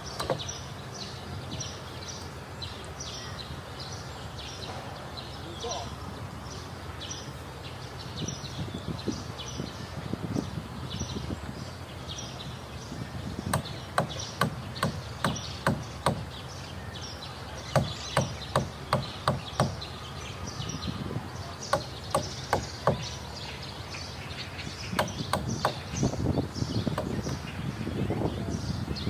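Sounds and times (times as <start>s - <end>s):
birds chirping: 0.0s - 29.0s
hammer striking wooden planks: 0.2s - 0.4s, 13.5s - 16.3s, 17.7s - 19.8s, 21.7s - 23.1s, 25.0s - 25.8s.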